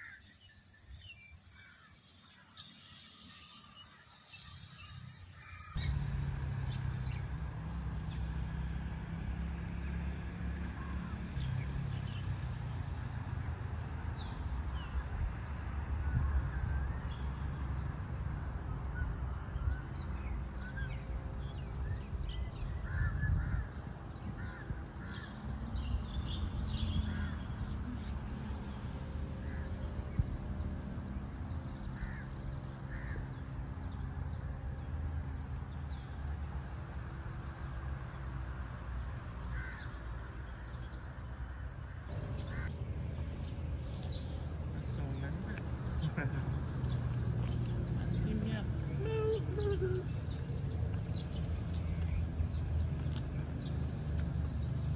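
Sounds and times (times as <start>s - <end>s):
birds calling: 14.2s - 30.0s, 31.4s - 34.9s, 39.4s - 54.9s.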